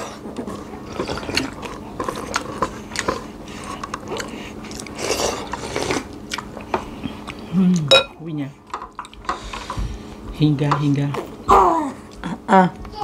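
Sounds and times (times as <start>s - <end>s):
chewing with wet mouth smacks: 0.4s - 7.9s.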